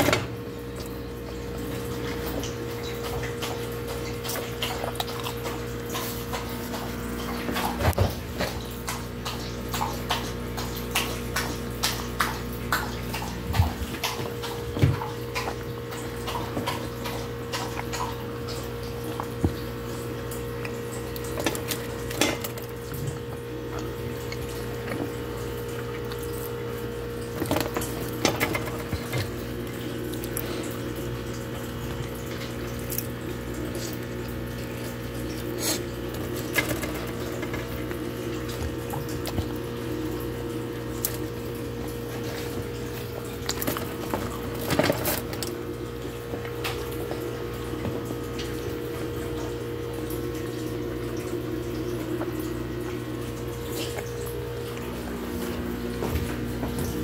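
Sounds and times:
background hum and hiss: 0.0s - 57.0s.

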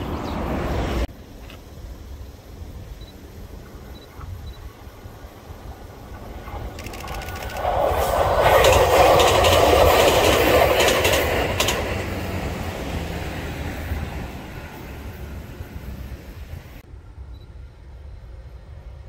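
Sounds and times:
electric train passing: 0.0s - 19.0s
wheels clicking over rail joints: 6.1s - 15.6s.

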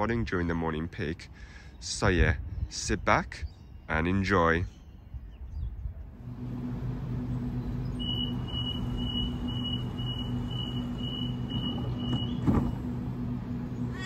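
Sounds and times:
electric train humming: 6.1s - 14.0s
door warning beeps: 8.0s - 12.8s.

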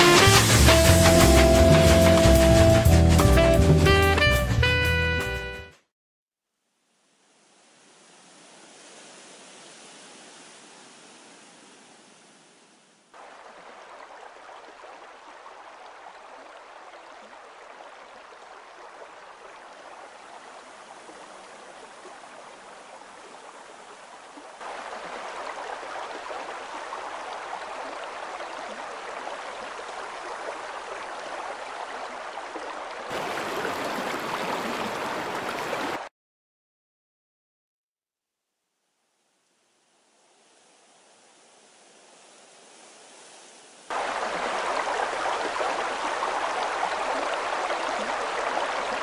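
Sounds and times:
rushing gurgling water: 0.0s - 3.3s, 7.3s - 36.1s, 39.8s - 49.0s.

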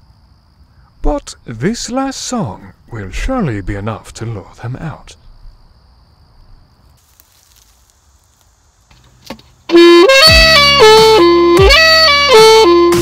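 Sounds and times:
saxophone melody: 9.7s - 13.0s.

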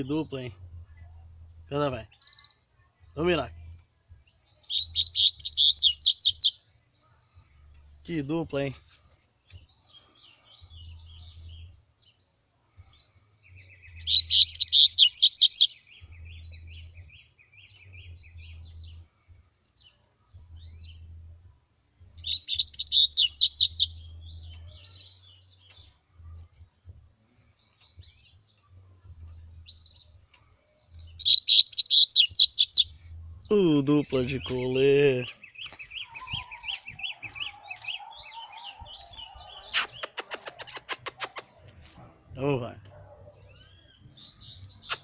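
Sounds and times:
birds singing high notes: 4.2s - 6.6s, 13.0s - 19.1s, 22.2s - 25.9s, 30.9s - 41.6s, 42.2s - 45.0s
faint bird chips: 39.6s - 41.6s, 44.7s - 45.0s.

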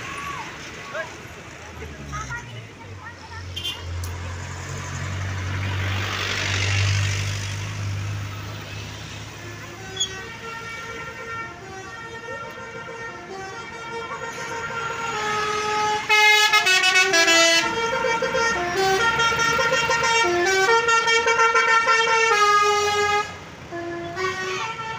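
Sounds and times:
musical bus air horn tune: 9.5s - 24.9s.

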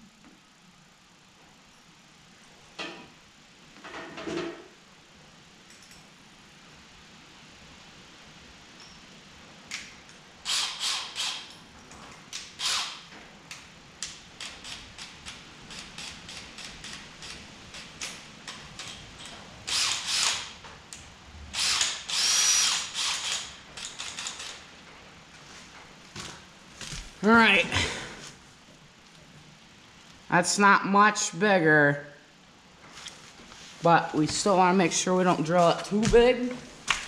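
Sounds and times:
cordless drill running: 10.5s - 11.5s, 12.6s - 13.0s, 19.7s - 20.6s, 21.6s - 24.6s
drill chuck ratcheting clicks: 10.5s - 11.6s, 12.4s - 13.1s, 14.4s - 20.6s, 21.6s - 24.6s.

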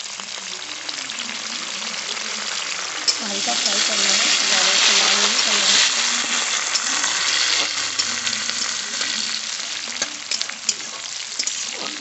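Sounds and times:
vegetables sizzling in hot oil: 0.0s - 12.0s
spatula stirring in metal pan: 3.0s - 12.0s.

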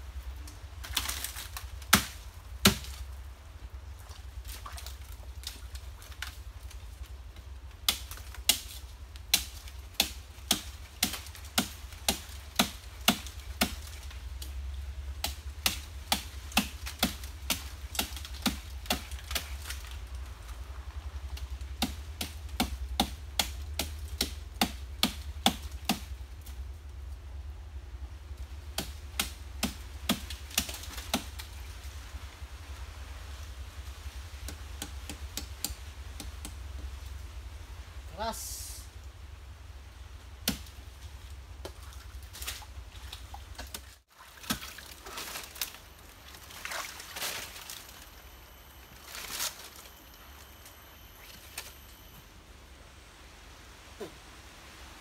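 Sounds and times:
machete chopping fruit: 0.9s - 3.0s, 7.8s - 13.9s, 15.2s - 19.8s, 21.8s - 26.1s, 28.8s - 31.4s, 34.4s - 36.6s, 40.4s - 40.7s.

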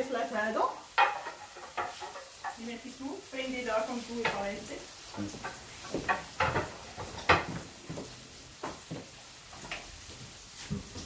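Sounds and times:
utensils clinking on cookware: 0.8s - 2.9s, 3.5s - 7.7s.

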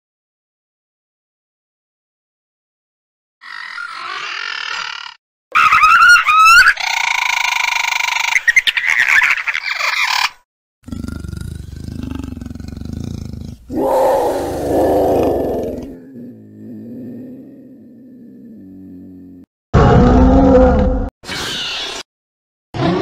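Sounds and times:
low rumbling growl: 10.9s - 21.1s
loud roar: 13.7s - 21.1s.

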